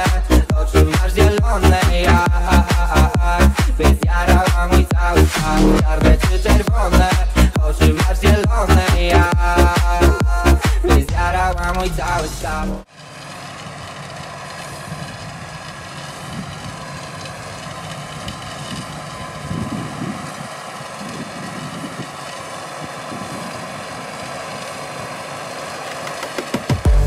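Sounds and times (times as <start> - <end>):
steady whine: 0.0 - 27.0
tractor diesel engine under load: 0.0 - 27.0.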